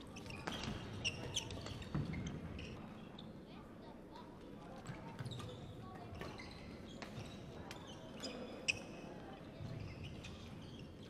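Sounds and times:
shoe squeaks on floor: 0.1 - 2.8, 5.2 - 9.0, 9.6 - 11.0.

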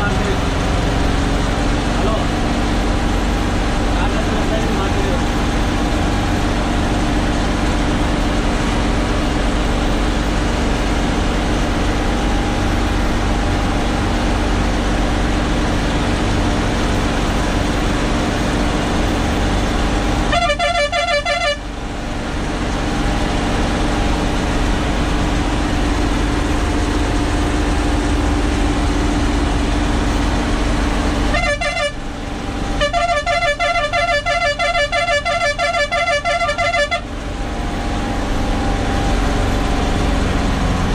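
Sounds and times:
truck engine running under load: 0.0 - 40.9
pulsing truck horn: 19.3 - 22.0, 30.9 - 37.2.

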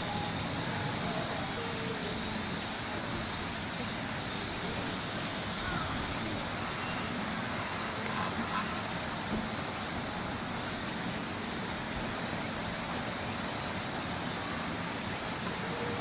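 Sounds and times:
faint distant voices: 0.0 - 10.2, 14.4 - 16.0
constant high hiss: 0.0 - 16.0.

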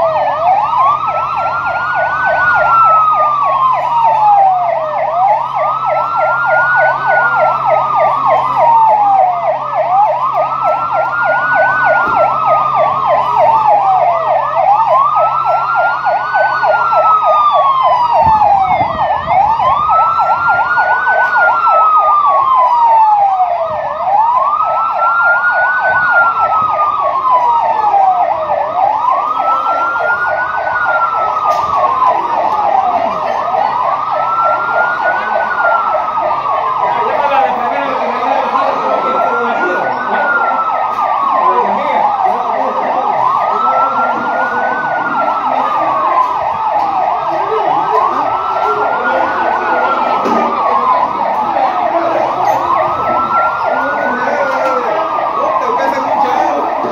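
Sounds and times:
ambulance siren wailing: 0.0 - 56.9.

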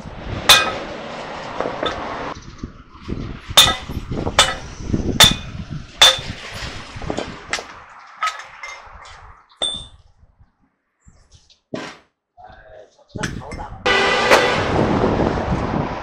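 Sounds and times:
hammer ringing on metal: 0.5 - 0.9, 3.6 - 6.4.

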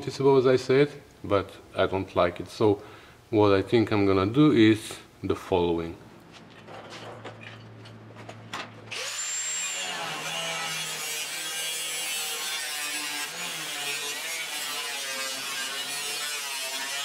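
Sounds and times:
angle grinder cutting steel: 8.9 - 17.0.

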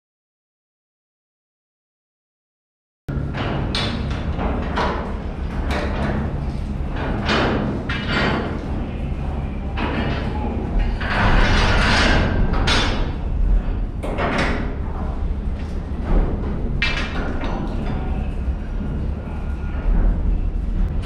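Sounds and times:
steady low hum: 3.1 - 21.0
metal bars clanking and scraping: 9.8 - 15.1.

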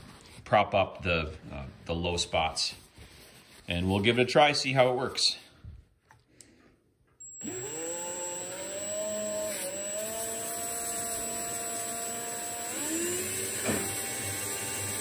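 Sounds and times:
cordless drill whining: 7.2 - 15.0.

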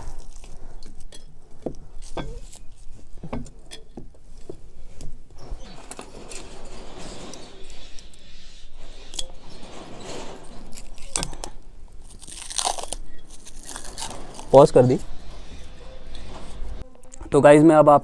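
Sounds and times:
plastic packaging crinkling: 12.0 - 14.7.

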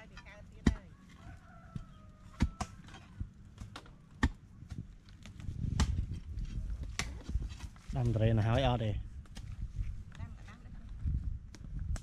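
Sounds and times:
hand tool chopping into soil: 6.9 - 7.6.

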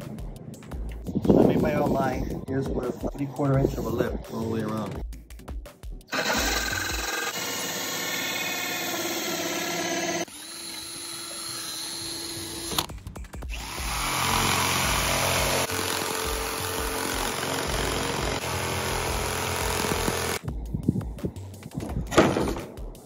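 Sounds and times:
jigsaw sawing fiberglass: 6.1 - 12.8, 13.5 - 20.4
drill with hole saw cutting: 6.1 - 12.9, 13.5 - 20.4.

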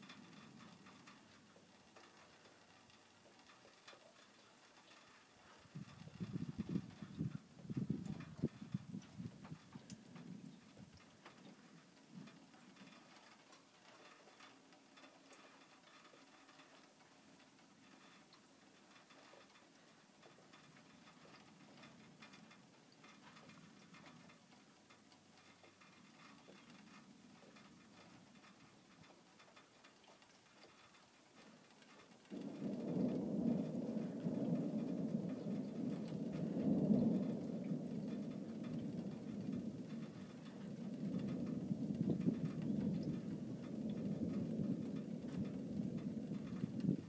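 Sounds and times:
light ticks: 0.0 - 47.0
wind gusting across microphone: 4.8 - 13.4, 31.8 - 47.0.

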